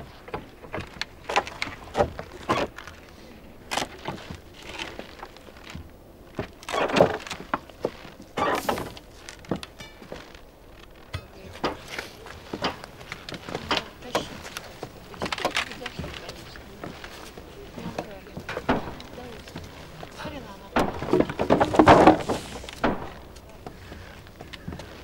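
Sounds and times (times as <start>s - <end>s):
wood cracking: 0.0s - 25.0s
crowbars knocking wood: 11.0s - 20.0s, 20.7s - 25.0s.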